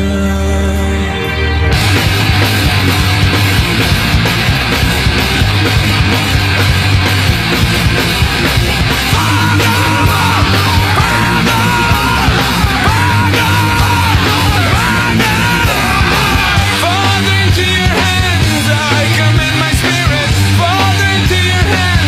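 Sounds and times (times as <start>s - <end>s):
vocals with long held notes: 0.0s - 1.6s, 9.1s - 22.0s
heavy rock music: 0.0s - 22.0s.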